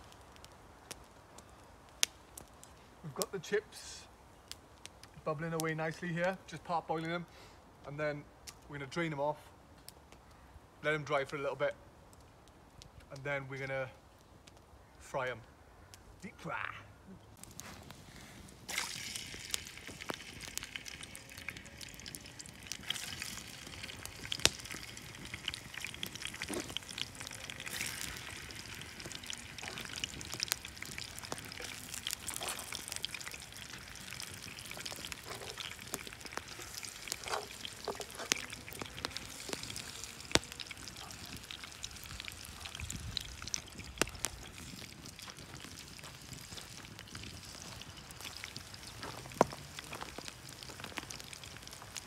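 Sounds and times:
wood fire popping and crackling: 0.0 - 52.0
pot of water bubbling: 18.4 - 52.0.

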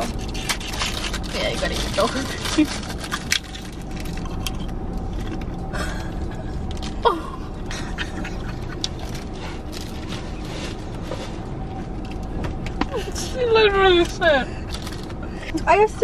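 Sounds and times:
plastic wrappers crinkling: 0.0 - 5.4
low hum in a car cabin: 0.0 - 16.0.

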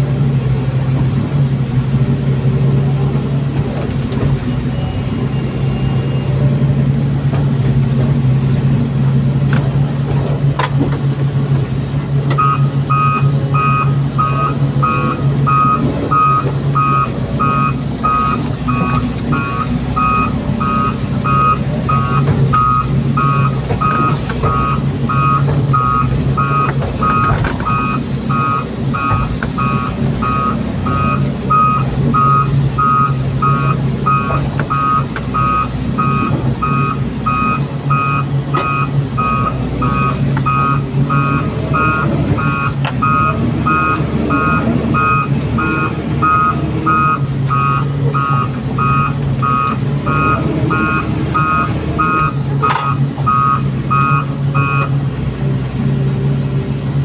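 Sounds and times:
excavator diesel engine running: 0.0 - 57.0
warning beeper: 4.5 - 6.4, 12.4 - 54.9.

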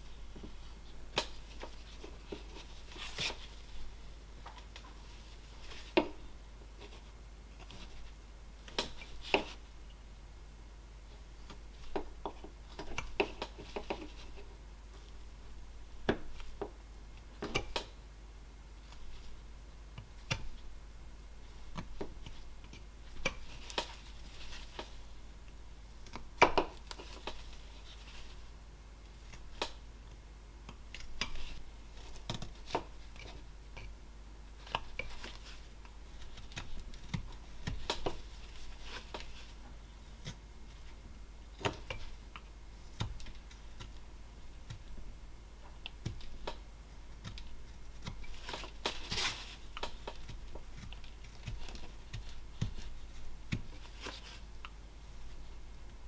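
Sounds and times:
knife carving wood: 6.8 - 9.6, 11.4 - 14.5, 18.9 - 20.7, 21.5 - 25.1, 26.0 - 28.4, 30.6 - 41.0, 41.6 - 56.0
knife scraping wood: 47.2 - 54.5.

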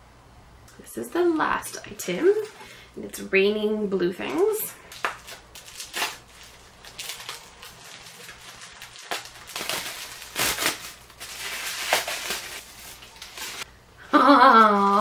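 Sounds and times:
packing paper crinkling: 4.8 - 13.7.

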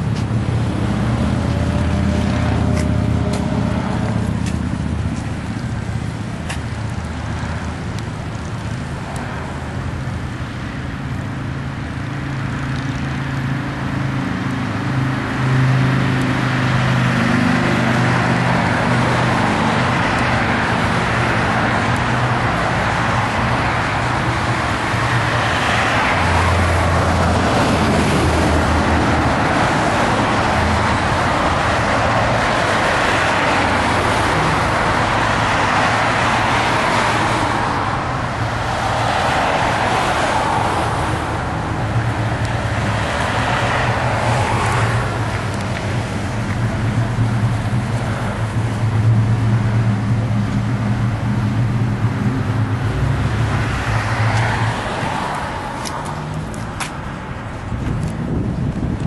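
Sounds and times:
engine running: 0.0 - 59.0
road noise: 0.0 - 59.0.

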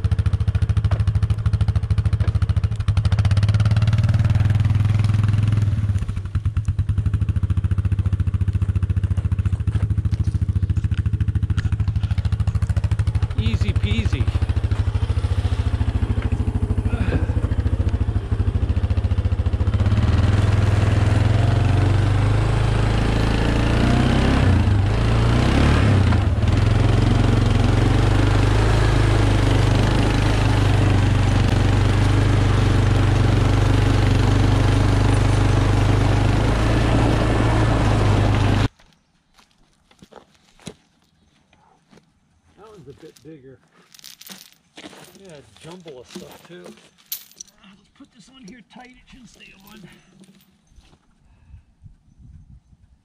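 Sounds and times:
atv engine idling and revving: 0.0 - 38.7.

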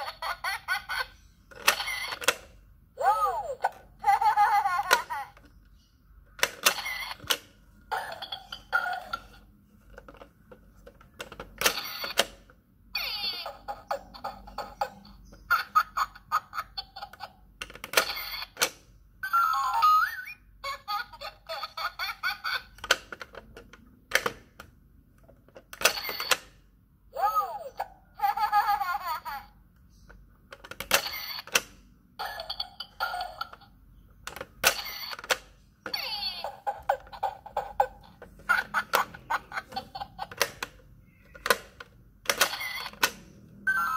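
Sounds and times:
toy camera shutter sound effect: 30.9 - 31.6, 34.6 - 37.8, 42.3 - 43.9
plastic button clicks: 38.2 - 43.3.

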